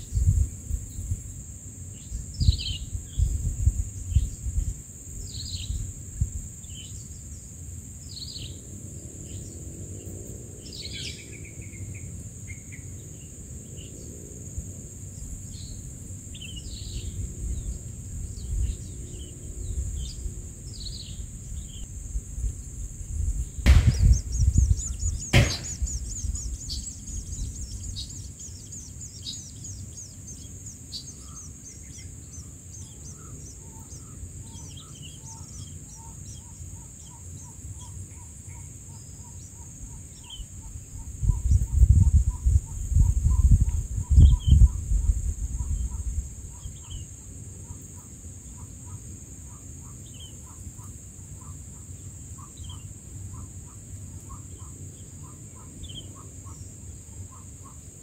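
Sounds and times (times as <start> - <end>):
high insect drone: 0.0 - 58.0
loud knocks: 23.7 - 24.6, 25.4 - 26.1
nestlings begging chirps: 23.7 - 38.3, 45.6 - 57.9.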